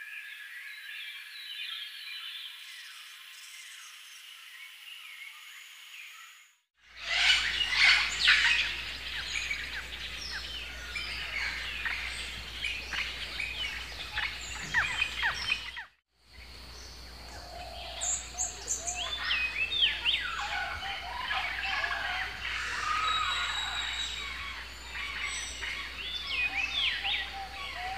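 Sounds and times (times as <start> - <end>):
whistled bird calls and trills: 0.0 - 27.9
birds chirping: 6.9 - 27.9.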